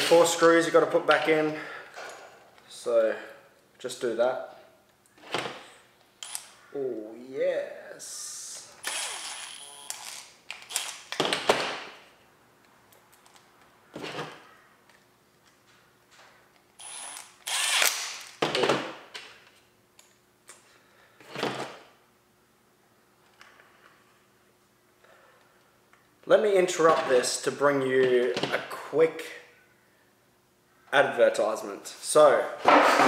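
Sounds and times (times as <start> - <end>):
cordless drill driving screws: 8.8 - 11.1, 16.8 - 18.1.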